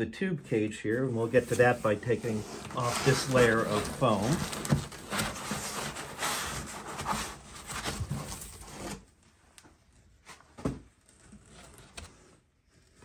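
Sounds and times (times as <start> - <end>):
foam rubbing against cardboard: 1.2 - 8.9.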